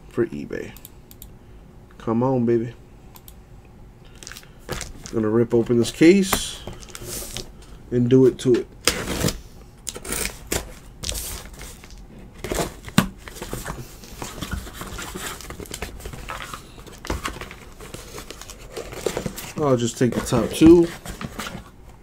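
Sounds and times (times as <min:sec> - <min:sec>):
shrink-wrap and cardboard ripping: 0:08.9 - 0:13.6.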